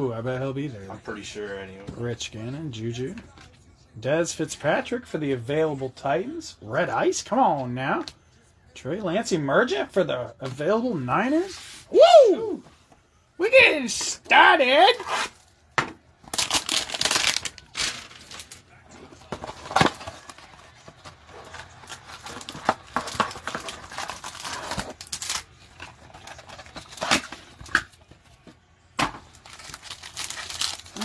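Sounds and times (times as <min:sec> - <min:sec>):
cardboard and plastic crinkling: 0:16.3 - 0:31.0.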